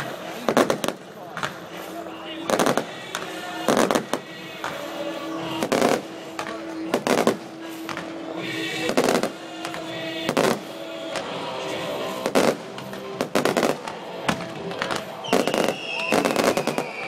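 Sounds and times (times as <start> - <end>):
small fireworks pops: 0.0 - 11.4, 12.1 - 17.0
fireworks bangs: 0.0 - 17.0.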